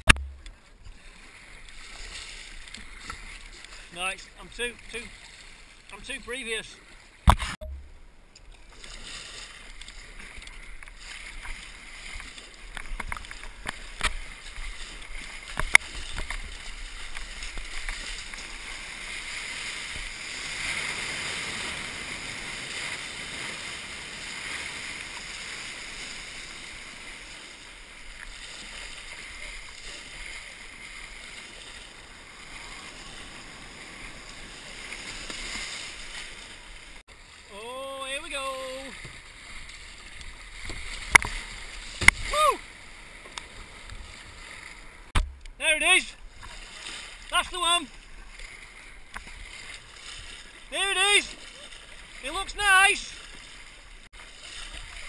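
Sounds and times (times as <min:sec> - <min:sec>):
sharp knocks: 0:00.0 - 0:00.5, 0:45.2 - 0:45.5
surf rushing and breaking: 0:08.8 - 0:55.0.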